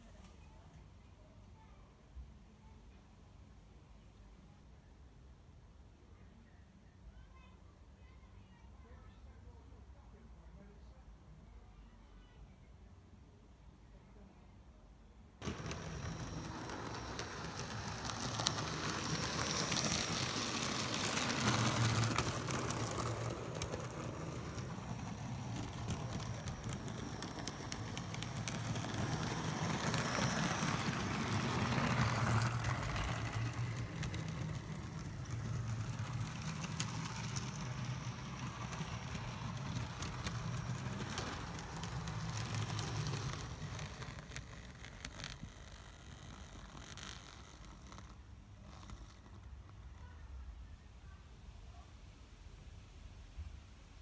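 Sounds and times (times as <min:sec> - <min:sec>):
wheels rattling on rails: 0:15.4 - 0:48.0
model train motors humming: 0:15.4 - 0:49.8.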